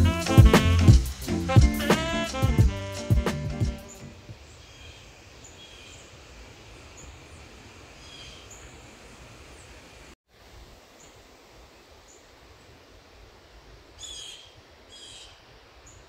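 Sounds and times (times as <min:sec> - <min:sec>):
music: 0:00.0 - 0:04.3.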